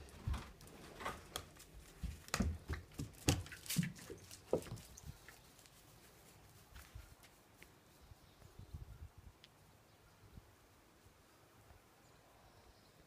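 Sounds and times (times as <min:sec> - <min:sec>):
dog paws scrambling: 0:00.0 - 0:07.8.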